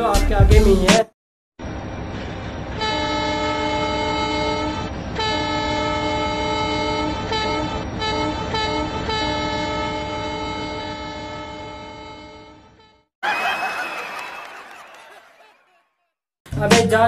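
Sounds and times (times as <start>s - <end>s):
train rumbling: 1.6s - 12.0s
train horn blasts: 2.7s - 13.1s.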